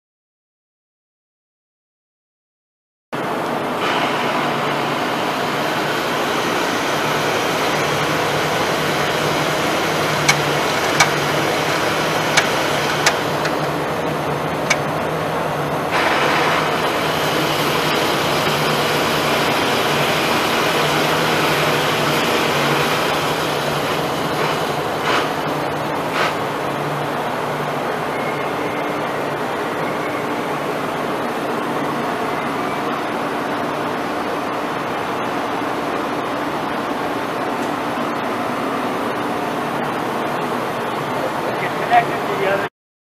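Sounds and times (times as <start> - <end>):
lathe running: 3.2 - 42.7
sharp clicks: 10.2 - 11.2, 12.3 - 13.8.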